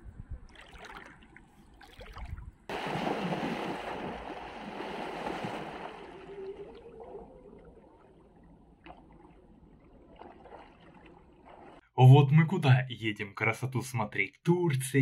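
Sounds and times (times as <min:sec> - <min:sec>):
bare feet wading in shallow water: 0:00.5 - 0:11.8
water splashing loudly: 0:01.8 - 0:08.2.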